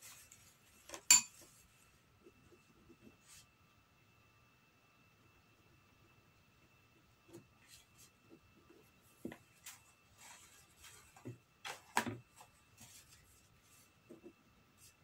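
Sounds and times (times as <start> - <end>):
spoon stirring in a bowl: 1.0 - 1.4.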